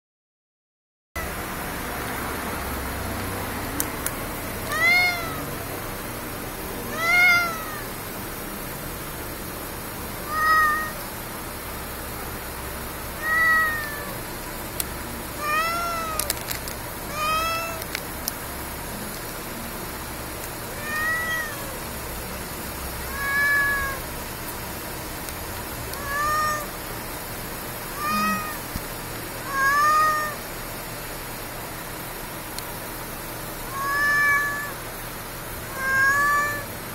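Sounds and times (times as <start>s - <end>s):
cat meowing: 4.6s - 5.7s, 6.8s - 8.0s, 10.2s - 11.2s, 13.1s - 14.2s, 15.3s - 16.4s, 17.1s - 17.9s, 20.7s - 21.9s, 23.0s - 24.1s, 25.8s - 26.8s, 27.9s - 28.8s, 29.4s - 30.5s, 33.7s - 34.8s, 35.7s - 36.7s.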